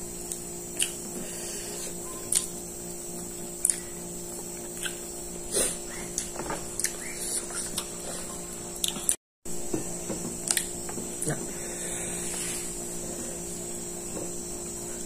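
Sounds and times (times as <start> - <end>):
electrical hum: 0.0 - 15.0
light clicks and mouth smacks: 0.3 - 1.0, 2.3 - 2.5, 3.6 - 3.9, 4.8 - 5.0, 6.1 - 7.9, 8.8 - 9.2, 10.4 - 10.7.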